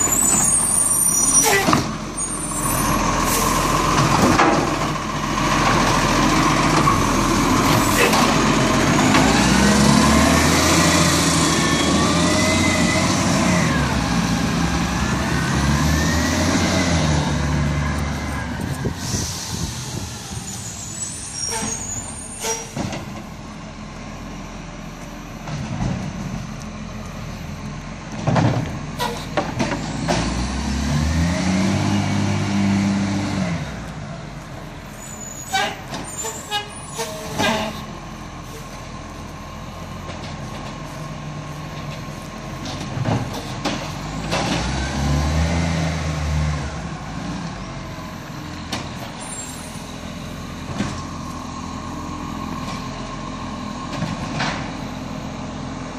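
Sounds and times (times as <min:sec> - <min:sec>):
garbage truck engine revving: 0:00.0 - 0:22.1, 0:28.4 - 0:33.9, 0:39.5 - 0:55.9.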